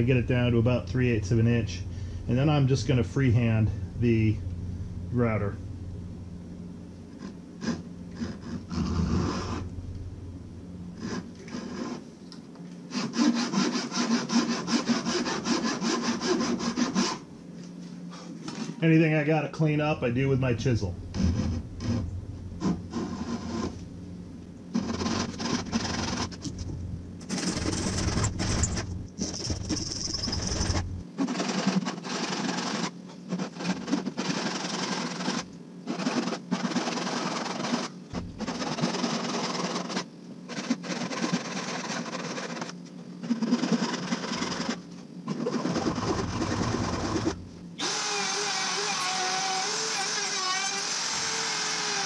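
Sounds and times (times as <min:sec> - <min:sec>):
hand saw cutting wood: 0:07.6 - 0:09.6, 0:11.0 - 0:12.0, 0:12.9 - 0:17.2, 0:22.6 - 0:23.8, 0:24.7 - 0:26.6, 0:27.3 - 0:52.0.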